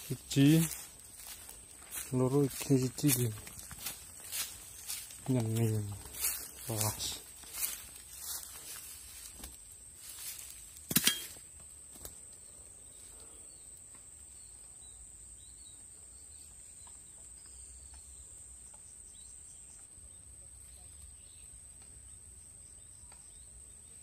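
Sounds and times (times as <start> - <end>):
insects chirring: 0.0 - 19.8.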